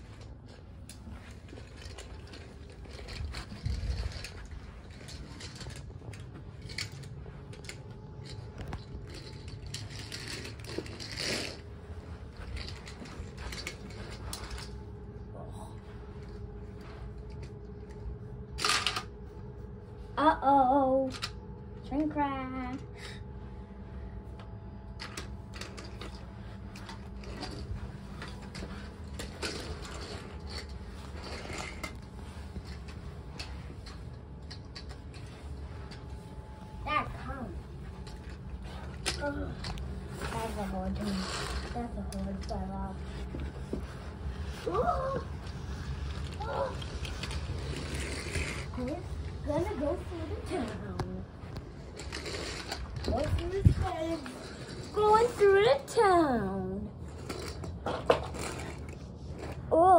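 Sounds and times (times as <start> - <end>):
toy train wheels rolling: 0.0 - 15.0, 18.6 - 19.1, 20.9 - 21.4, 24.9 - 36.1, 36.9 - 59.8.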